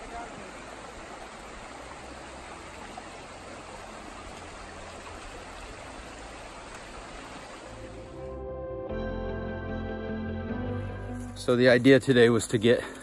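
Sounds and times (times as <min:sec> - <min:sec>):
creek running over rocks: 0:00.0 - 0:08.2
soft music: 0:07.7 - 0:12.6.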